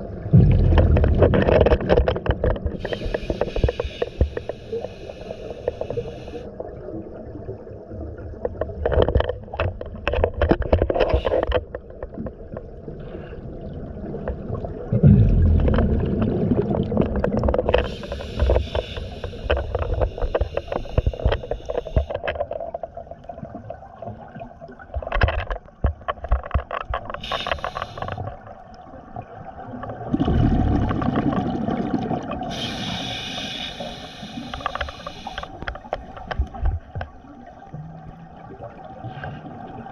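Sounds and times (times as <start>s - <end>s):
bubbling exhalations: 0.3s - 1.8s, 14.9s - 19.3s
diver breathing through regulator: 2.8s - 6.5s, 17.7s - 22.1s, 27.2s - 28.2s, 32.5s - 35.6s.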